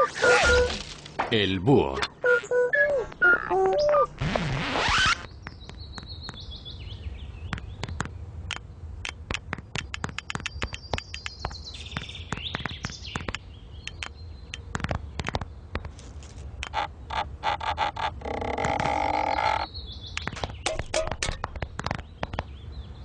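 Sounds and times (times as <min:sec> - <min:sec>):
cartoon bird chirps: 0:00.0 - 0:00.8, 0:02.2 - 0:04.1
sharp clicks: 0:07.5 - 0:11.5, 0:12.3 - 0:15.9.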